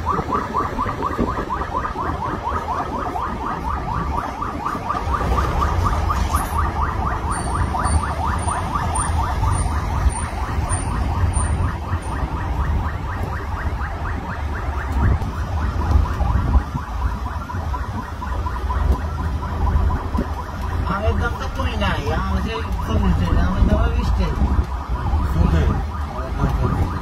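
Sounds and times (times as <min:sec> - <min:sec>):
electronic siren chirping: 0:00.0 - 0:27.0
vehicle rumble: 0:00.0 - 0:27.0.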